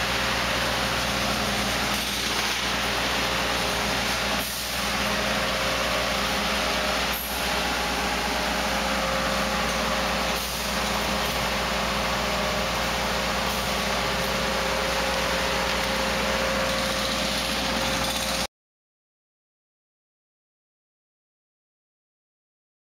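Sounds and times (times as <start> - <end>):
machine engine whine and hiss: 0.0 - 18.5.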